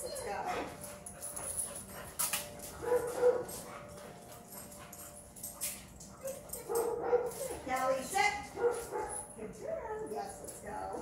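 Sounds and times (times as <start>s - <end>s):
footsteps on concrete floor: 0.6s - 9.3s
dog whining: 6.0s - 7.8s.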